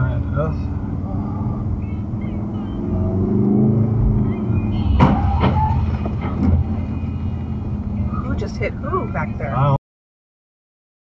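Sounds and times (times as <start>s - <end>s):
car engine and road noise: 0.0s - 9.8s
car crash bangs: 4.8s - 6.9s.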